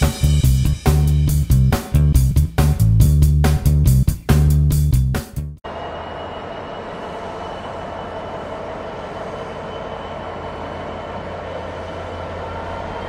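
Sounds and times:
diesel locomotive engine drone: 0.0 - 3.2, 5.6 - 13.0
thin high whine: 5.6 - 13.0.

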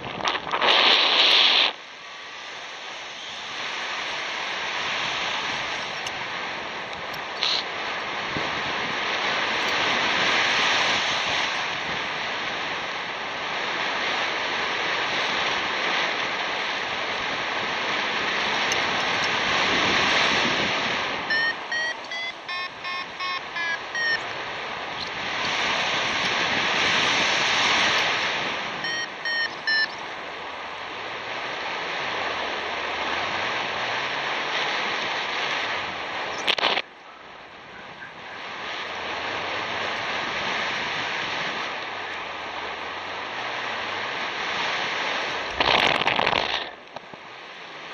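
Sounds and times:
wind rushing over microphone: 0.0 - 47.9
short beeps changing pitch: 21.3 - 24.2, 28.8 - 30.0.

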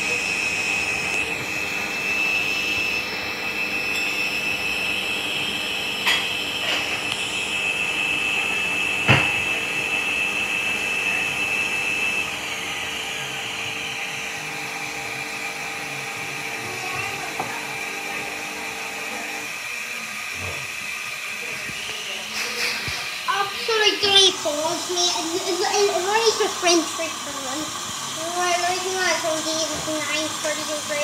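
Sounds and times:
washing machine motor whine: 0.0 - 31.0.

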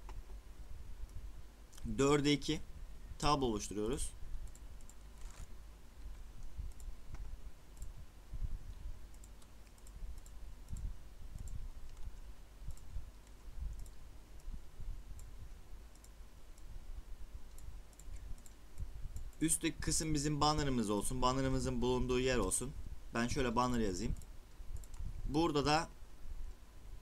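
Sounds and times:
computer mouse clicking: 4.4 - 8.0, 8.7 - 16.7, 17.4 - 19.5, 24.0 - 25.1.

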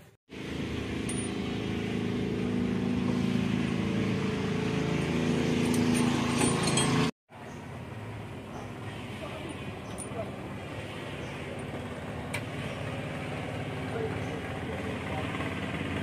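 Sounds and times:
engine running steadily: 0.0 - 16.0
light metallic clinks: 5.6 - 7.1, 9.4 - 10.4.

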